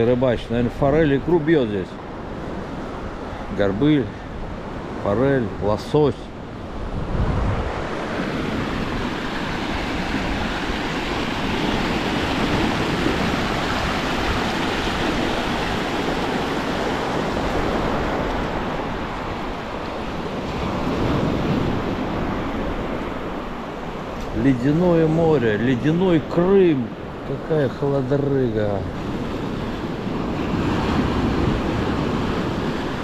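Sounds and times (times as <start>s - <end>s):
surf and river rushing: 0.0s - 33.0s
wind on microphone: 6.2s - 26.2s.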